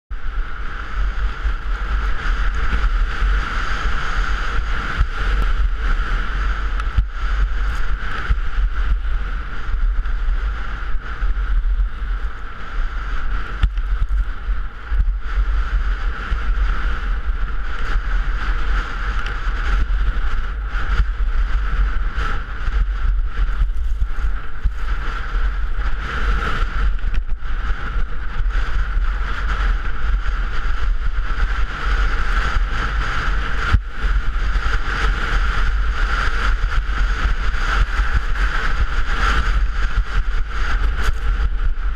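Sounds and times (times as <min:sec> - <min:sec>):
wind rushing over microphone: 0:00.1 - 0:41.9
skis scraping over snow: 0:13.0 - 0:41.9.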